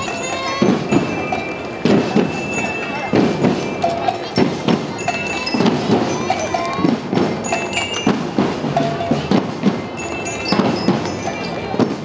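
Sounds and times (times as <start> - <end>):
bell-lyre notes: 0.0 - 12.0
marching drum strokes: 0.0 - 12.0.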